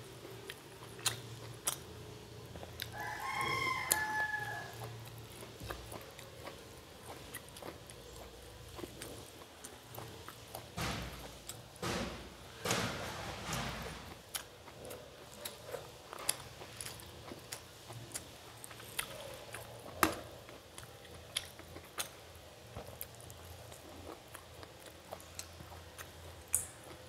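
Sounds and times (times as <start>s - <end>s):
person chewing: 0.2s - 11.7s, 14.1s - 27.0s
rooster crowing: 2.9s - 5.0s.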